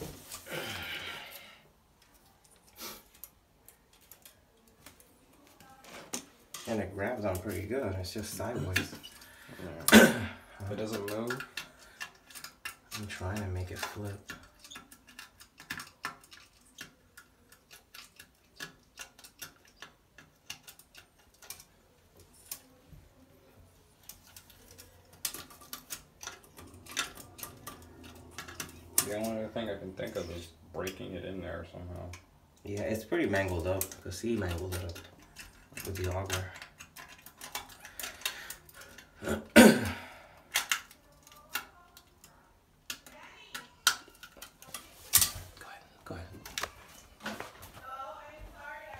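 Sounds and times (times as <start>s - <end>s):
metal cable scraping toilet bowl: 24.0s - 31.1s.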